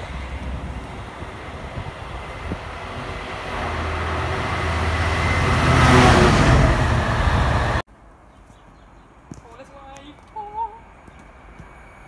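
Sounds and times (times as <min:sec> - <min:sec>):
freight train passing: 0:00.0 - 0:07.8.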